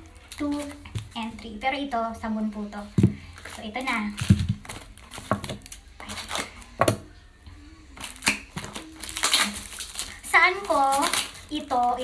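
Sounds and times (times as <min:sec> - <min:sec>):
paper wrappers crinkling: 0:03.0 - 0:06.9, 0:07.9 - 0:12.0.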